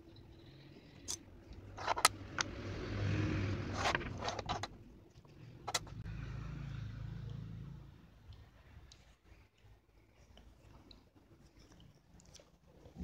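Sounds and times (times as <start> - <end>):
tiles sliding rustle: 3.6 - 4.7.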